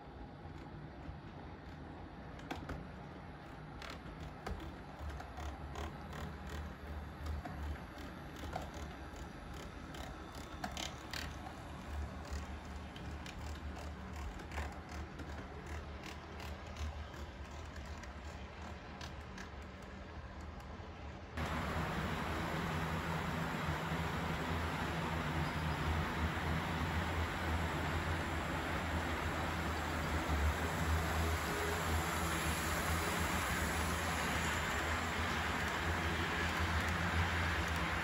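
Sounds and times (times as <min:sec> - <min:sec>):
model train wheels clicking and rattling: 0:00.3 - 0:38.0
low steady hum: 0:21.4 - 0:38.0.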